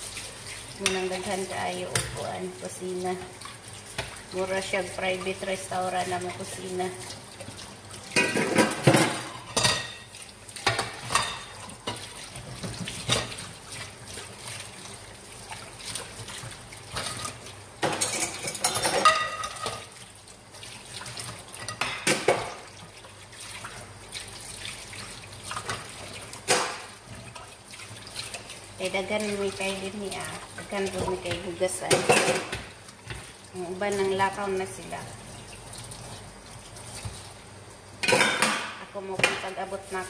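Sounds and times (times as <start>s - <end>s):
running water: 0.0s - 40.0s
cookware clattering in metal sink: 8.0s - 13.5s, 16.9s - 20.0s, 21.1s - 22.7s, 25.5s - 27.5s, 30.8s - 33.3s, 38.0s - 39.6s.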